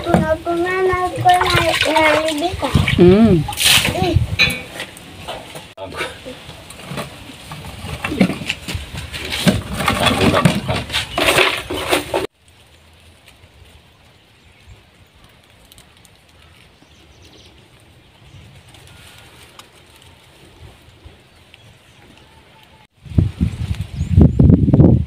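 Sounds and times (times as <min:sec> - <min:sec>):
cooking pots and utensils clattering: 0:04.3 - 0:12.3.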